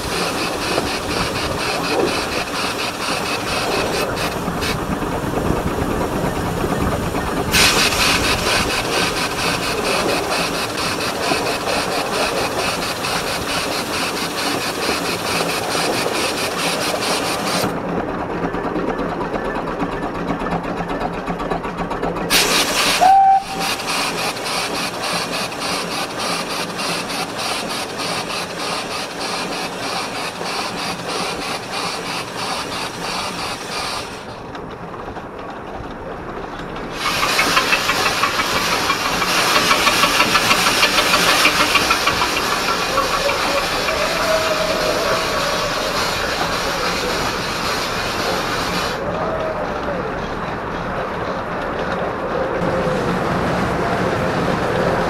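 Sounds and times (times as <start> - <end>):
hissing steam: 0.0 - 17.7, 22.3 - 34.4, 36.8 - 50.0
rush of steam: 0.0 - 17.8, 22.3 - 34.5, 36.4 - 55.0
steam locomotive exhaust beats: 0.0 - 55.0
steam whistle toot: 22.3 - 23.9, 43.0 - 46.8.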